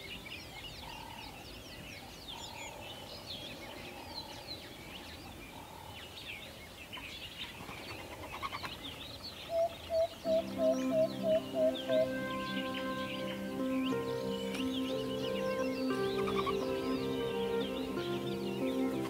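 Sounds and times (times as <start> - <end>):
birds chirping: 0.0 - 19.0
low bird call: 9.4 - 19.0
soft music: 10.2 - 19.0.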